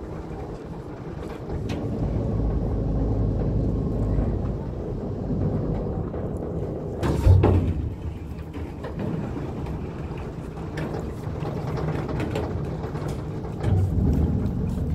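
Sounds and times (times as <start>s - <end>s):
ferry engine rumble: 0.0s - 14.9s
clicks and rattles: 3.3s - 14.9s.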